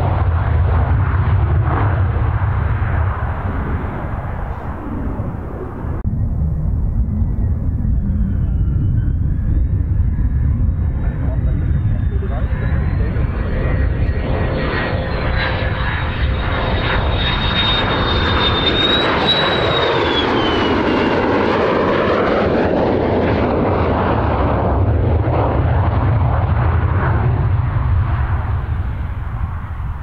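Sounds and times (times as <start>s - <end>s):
jet engine rumble and whine: 0.0s - 30.0s.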